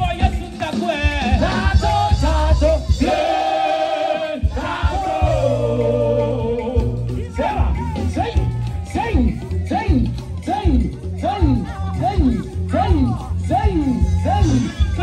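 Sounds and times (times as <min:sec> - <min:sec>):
amplified backing music with bass: 0:00.0 - 0:15.0.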